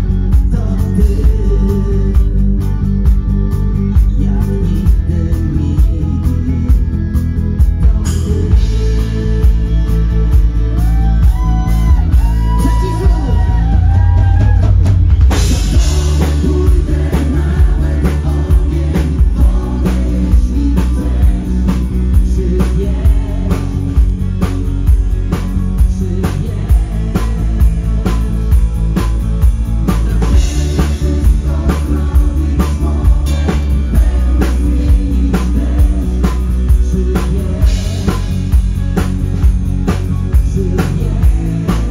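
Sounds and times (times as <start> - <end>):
person singing: 0.0 - 2.8, 10.8 - 14.7, 15.3 - 24.5, 30.1 - 38.5
live rock band playing: 0.0 - 41.9
steady drum beat: 0.0 - 41.9.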